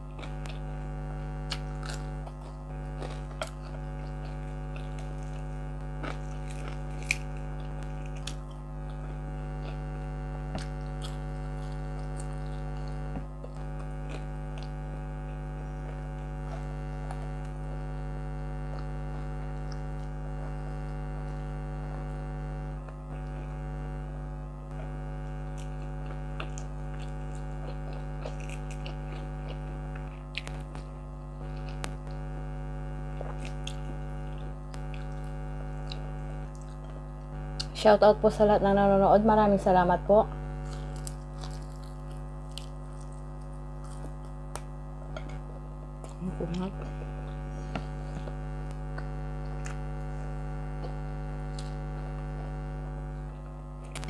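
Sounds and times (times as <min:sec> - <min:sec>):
chewing and biting: 0:00.0 - 0:17.5, 0:25.5 - 0:32.3, 0:33.0 - 0:37.7, 0:40.5 - 0:50.1, 0:50.7 - 0:52.2
air conditioner humming: 0:00.0 - 0:54.0.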